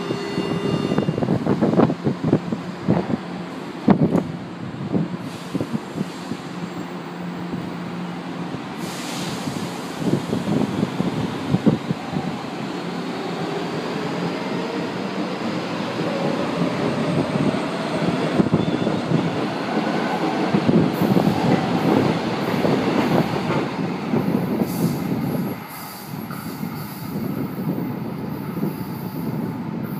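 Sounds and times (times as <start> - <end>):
metro train running past: 0.0 - 29.9.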